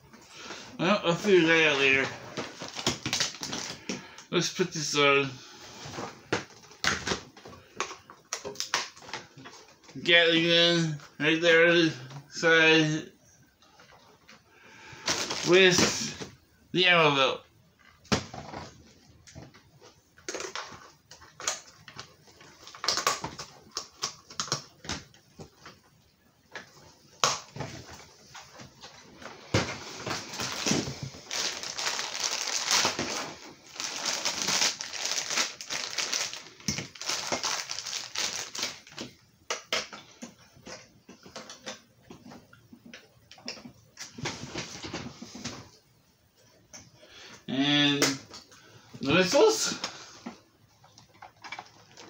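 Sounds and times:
plastic packaging crinkling: 0:01.8 - 0:03.9, 0:15.0 - 0:15.5, 0:29.8 - 0:39.2.

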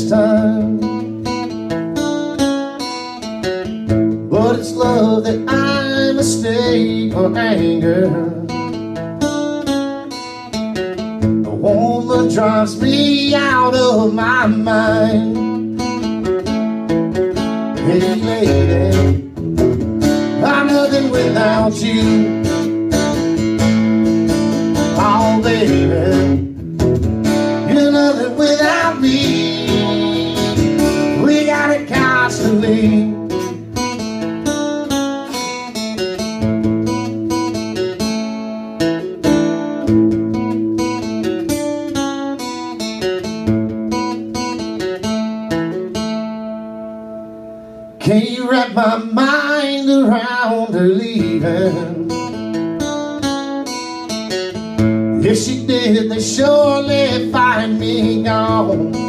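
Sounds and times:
acoustic guitar strumming: 0:00.0 - 0:59.0
wavering lead melody: 0:26.0 - 0:34.6.

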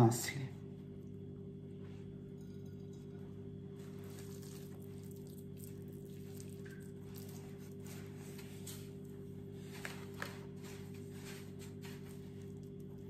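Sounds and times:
steady low hum: 0:00.0 - 0:13.0
wet hands squishing mixture: 0:03.7 - 0:13.0.

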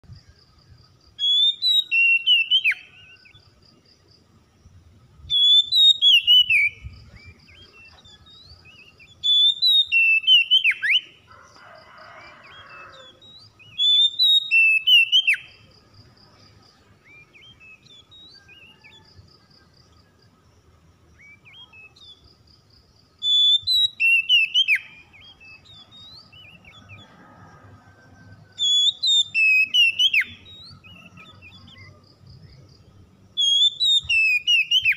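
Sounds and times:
bird whistled song: 0:00.0 - 0:03.6, 0:05.2 - 0:11.2, 0:12.1 - 0:15.7, 0:17.0 - 0:20.2, 0:21.1 - 0:22.4, 0:23.2 - 0:27.1, 0:28.3 - 0:34.9.

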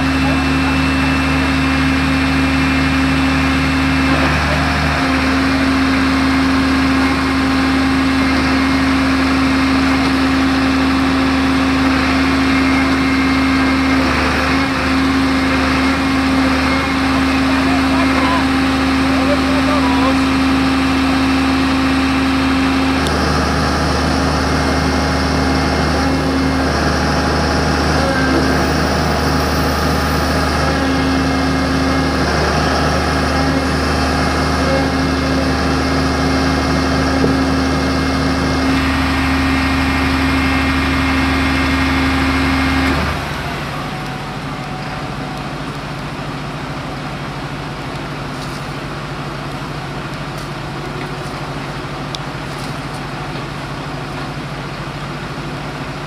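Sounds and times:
diesel engine idling: 0:00.0 - 0:56.0.

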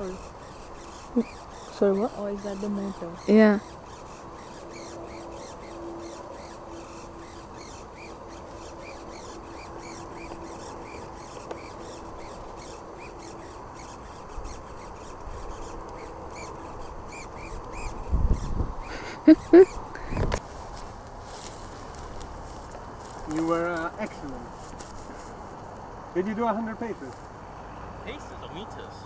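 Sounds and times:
rhythmic squeaky chuffing: 0:00.0 - 0:20.3.

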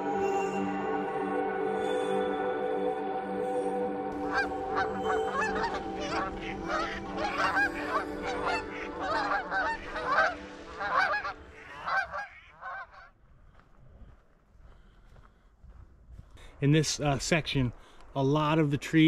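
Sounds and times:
geese honking: 0:04.2 - 0:13.2.

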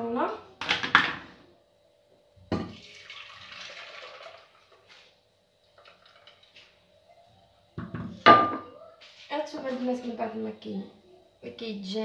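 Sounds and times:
thick mixture pouring into saucepan: 0:02.7 - 0:04.9
knock: 0:07.8 - 0:08.6.

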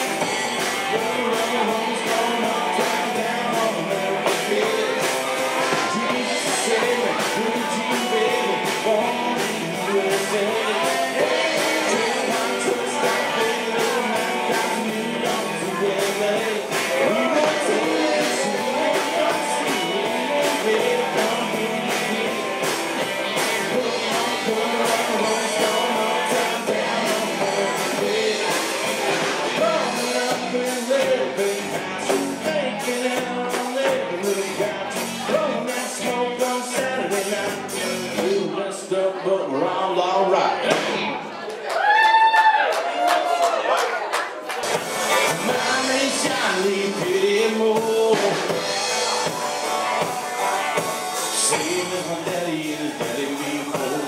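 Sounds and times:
person singing: 0:00.0 - 0:41.2, 0:44.8 - 0:54.0
country rock band playing: 0:00.0 - 0:54.0.

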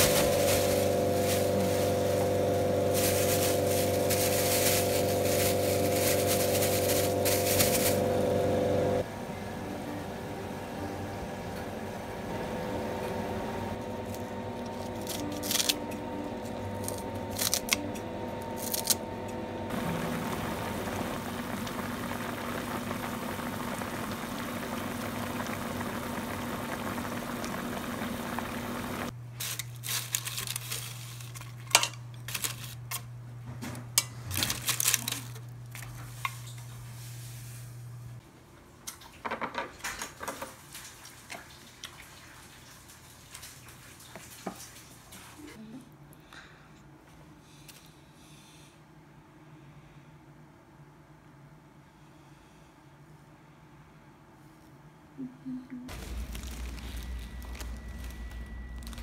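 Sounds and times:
soup boiling in a pot: 0:00.0 - 0:09.0, 0:19.7 - 0:29.2, 0:55.9 - 0:59.0
steady low hum: 0:00.0 - 0:11.4, 0:55.1 - 0:59.0.

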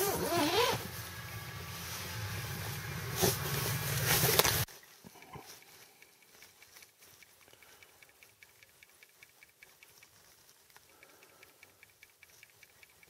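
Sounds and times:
faint light ticking: 0:05.2 - 0:13.0.

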